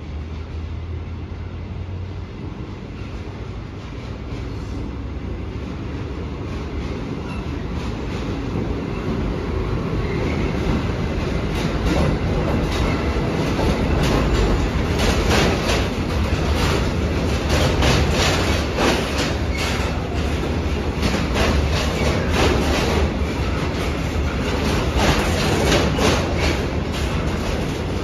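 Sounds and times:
freight train rumble: 0.0s - 28.0s
wheels clattering over rail joints: 6.2s - 28.0s.

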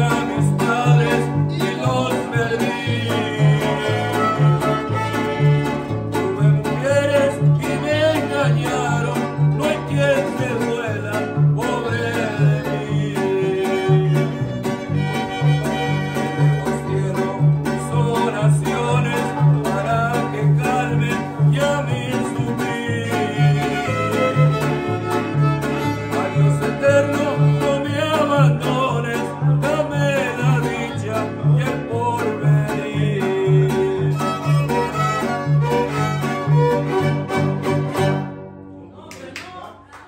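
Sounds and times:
strummed guitar: 0.0s - 38.8s
harp bass notes: 0.0s - 39.0s
violins playing melody: 3.9s - 6.1s, 13.4s - 16.8s, 23.5s - 26.6s, 34.1s - 38.2s.

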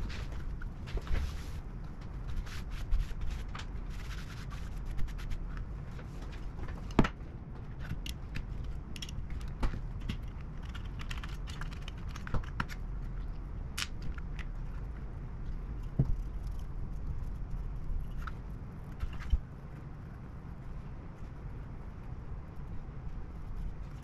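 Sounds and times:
low steady hum: 0.0s - 24.0s
small hard objects clicking: 7.8s - 14.8s.

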